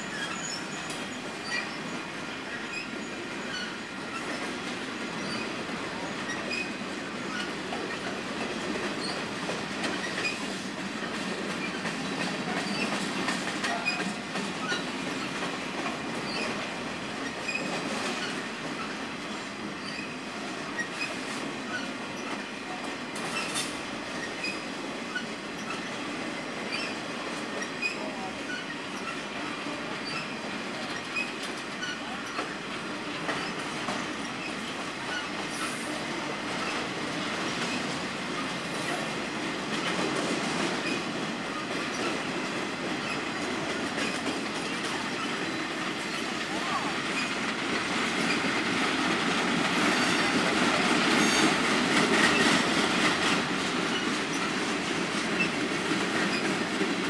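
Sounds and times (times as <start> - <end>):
train wheels rumbling on rails: 0.0 - 57.0
high wheel squeaks: 0.1 - 4.4, 5.2 - 8.2, 9.0 - 9.2, 9.9 - 10.5, 11.6 - 13.0, 13.6 - 15.3, 16.2 - 16.6, 17.2 - 19.0, 19.8 - 22.5, 44.0 - 47.4, 49.7 - 50.4, 51.0 - 52.6, 53.8 - 54.6.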